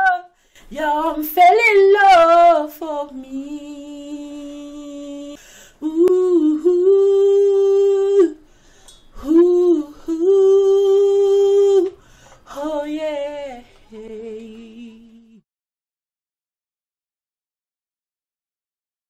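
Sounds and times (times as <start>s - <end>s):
singer breathing: 0.3s - 0.7s, 5.4s - 5.8s, 8.4s - 9.2s, 12.0s - 12.5s
woman singing held notes: 9.1s - 15.4s.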